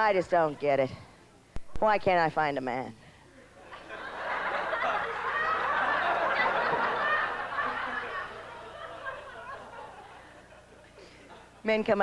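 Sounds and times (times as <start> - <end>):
audience laughing: 3.6 - 11.6.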